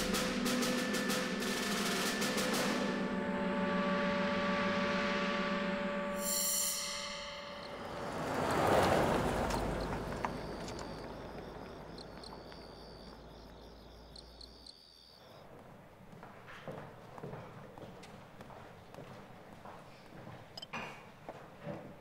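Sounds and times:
night insects chirping: 0:06.2 - 0:15.7.

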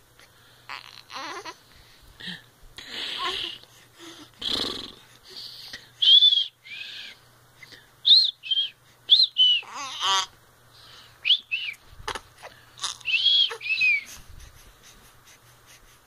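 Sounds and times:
baby squeaking: 0:09.6 - 0:10.3, 0:12.8 - 0:14.1.

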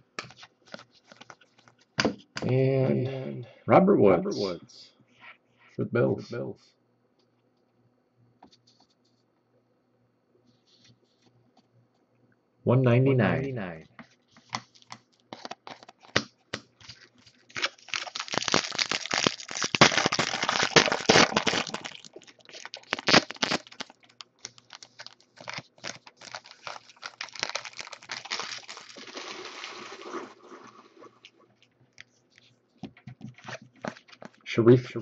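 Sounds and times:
foil wrapper crinkling: 0:00.2 - 0:01.9, 0:14.4 - 0:32.6, 0:33.3 - 0:34.5
cards being flicked and shuffled: 0:00.2 - 0:02.6, 0:14.0 - 0:21.9, 0:32.8 - 0:34.4.

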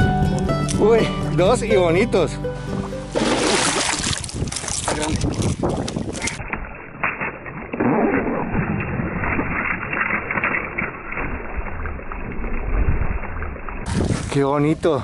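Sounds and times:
fish splashing in water: 0:03.2 - 0:14.4.

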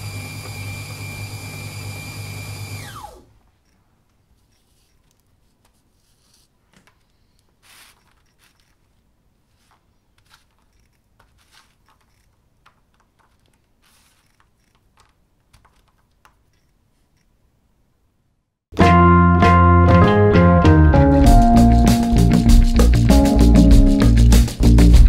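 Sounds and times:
crisp crackles and rustles: 0:03.7 - 0:17.2.

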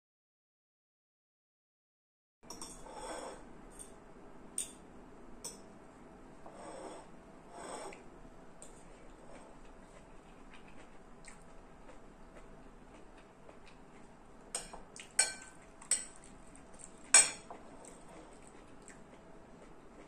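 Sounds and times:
cutlery clinking on china bowl: 0:02.5 - 0:04.0, 0:14.6 - 0:16.2, 0:17.1 - 0:17.6.

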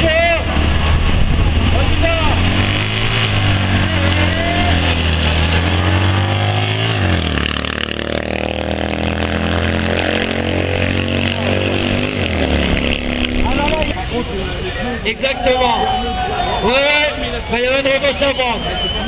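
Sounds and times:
car engines running hard: 0:00.0 - 0:19.0.

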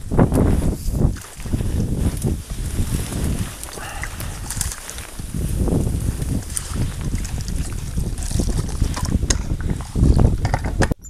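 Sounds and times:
wind buffeting microphone: 0:00.0 - 0:11.0
water lapping against boat: 0:06.0 - 0:10.0.

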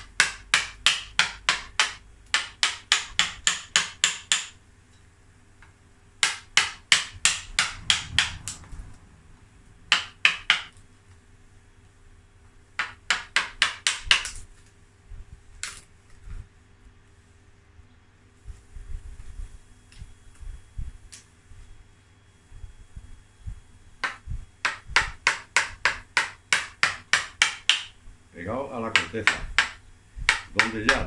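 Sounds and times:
mallet tapping a gouge into wood: 0:00.1 - 0:04.6, 0:06.2 - 0:08.4, 0:09.9 - 0:10.7, 0:12.8 - 0:14.3, 0:24.0 - 0:28.0, 0:28.9 - 0:31.0.

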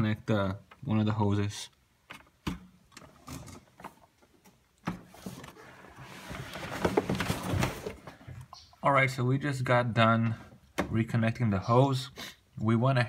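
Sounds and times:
handling hoses and fittings: 0:02.0 - 0:08.6
rustling and clattering: 0:02.1 - 0:08.6.

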